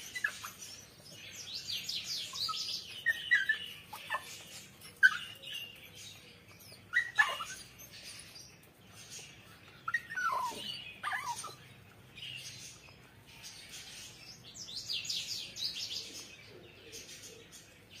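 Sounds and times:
puppy yelping: 0.0s - 1.1s, 2.3s - 5.8s, 6.5s - 7.9s, 9.8s - 11.7s.

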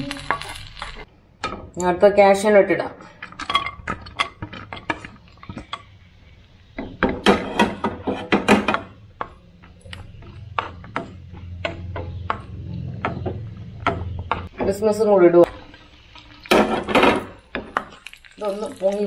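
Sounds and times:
nuts clattering into hot pan: 15.5s - 19.0s.

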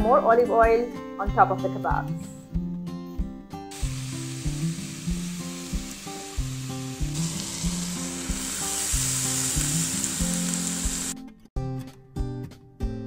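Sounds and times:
meat sizzling on grill: 3.7s - 11.2s.

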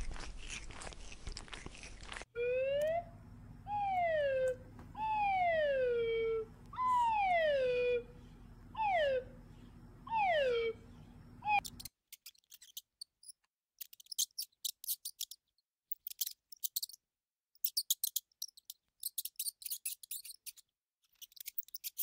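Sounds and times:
rat crunching dry food: 0.0s - 2.3s.

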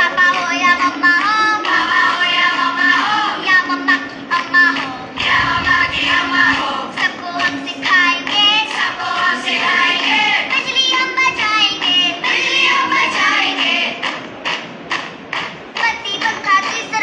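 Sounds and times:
girls singing together: 0.0s - 14.1s
steady low tone: 4.0s - 7.8s.

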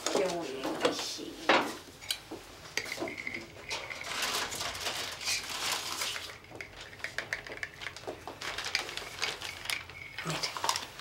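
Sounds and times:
dishes being handled: 2.8s - 4.7s.

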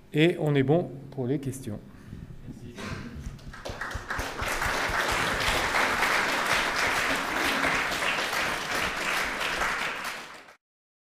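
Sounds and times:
audience applauding: 3.2s - 10.6s.

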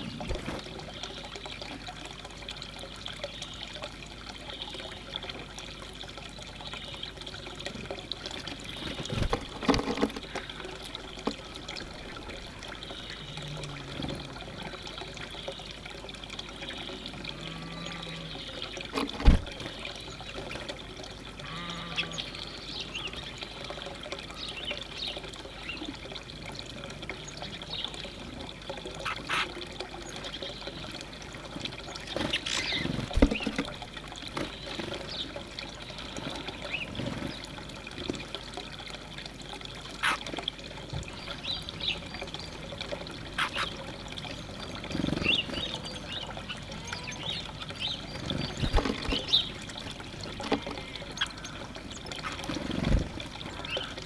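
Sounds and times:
water trickling: 0.0s - 54.0s
small birds chirping: 31.9s - 33.6s.

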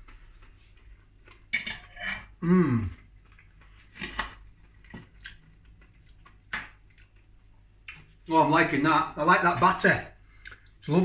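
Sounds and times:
cutlery clinking on a plate: 1.5s - 2.3s
person humming: 2.4s - 3.0s.

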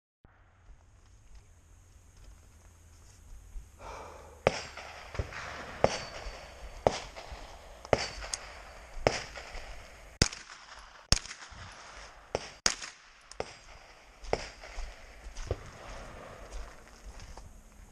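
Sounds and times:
carbine single gunshots: 4.3s - 16.7s.

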